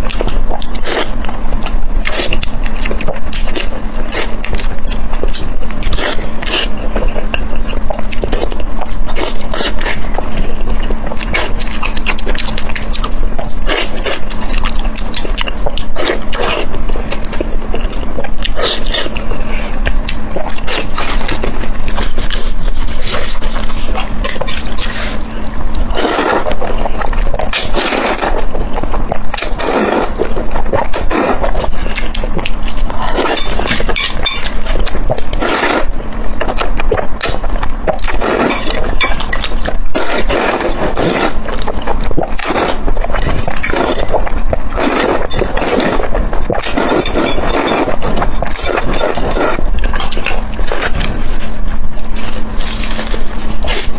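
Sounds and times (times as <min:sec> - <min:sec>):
faint low hum: 0:00.0 - 0:53.9
wet chewing and mouth clicks: 0:00.0 - 0:53.9
loud slurping of noodles: 0:25.9 - 0:26.5, 0:35.4 - 0:35.9.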